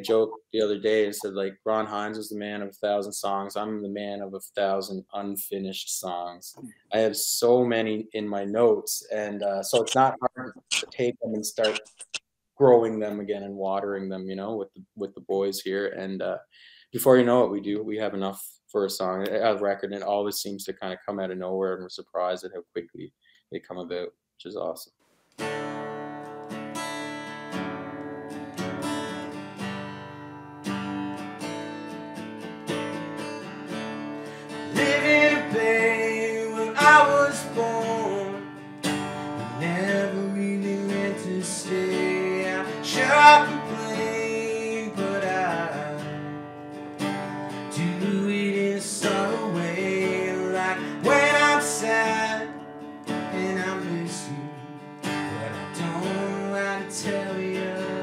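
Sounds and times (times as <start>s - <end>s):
man singing: 0.0s - 1.5s, 34.5s - 38.4s, 39.4s - 46.2s, 47.8s - 52.5s, 53.2s - 54.6s, 55.3s - 58.0s
acoustic guitar strumming: 25.4s - 58.0s.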